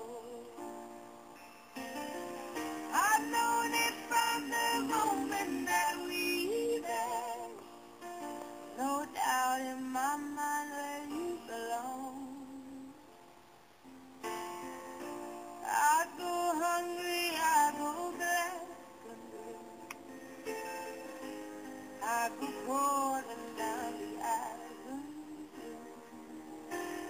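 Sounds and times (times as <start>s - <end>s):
woman singing pop song: 0.0s - 0.7s, 2.8s - 7.8s, 8.7s - 13.1s, 15.6s - 19.9s, 22.0s - 27.0s
instrumental backing: 0.0s - 27.0s.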